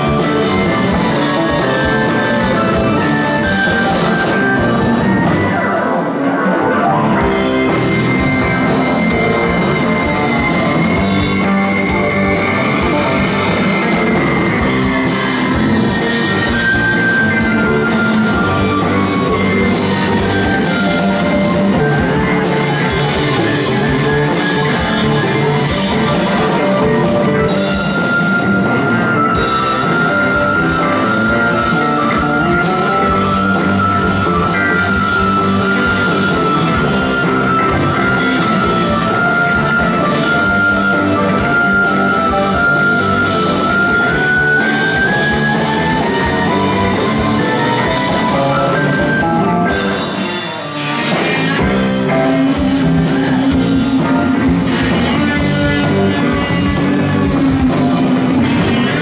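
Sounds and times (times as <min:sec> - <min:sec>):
rock band playing live: 0:00.0 - 0:59.0.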